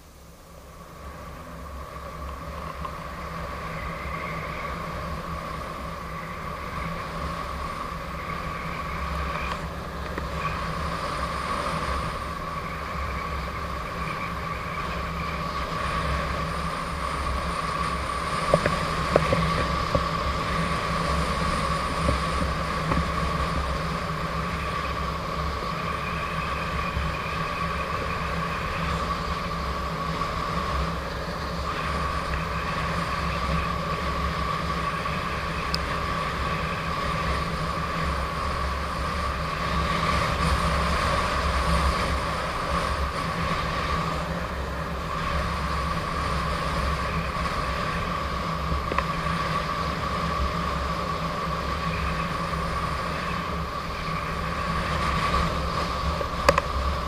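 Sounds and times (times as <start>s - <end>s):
electric motor whine: 0.0s - 57.0s
wind and road noise: 0.0s - 57.0s.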